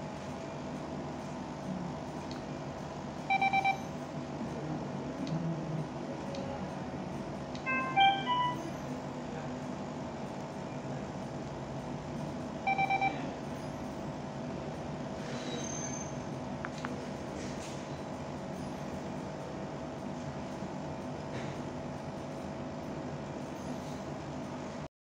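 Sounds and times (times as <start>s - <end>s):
steady background hum: 0.0s - 24.9s
electronic beeps: 3.3s - 3.9s, 7.6s - 8.9s, 12.7s - 13.3s.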